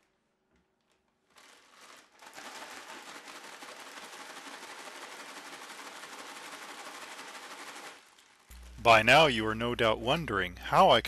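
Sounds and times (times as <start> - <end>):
plastic bag crinkling: 0.8 - 8.8.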